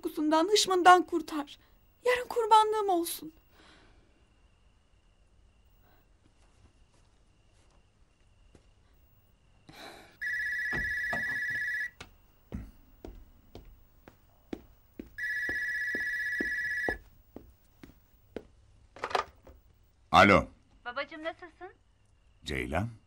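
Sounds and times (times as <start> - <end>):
mobile phone ringing: 10.2 - 12.0, 15.2 - 17.1
footsteps on floor: 10.6 - 18.6.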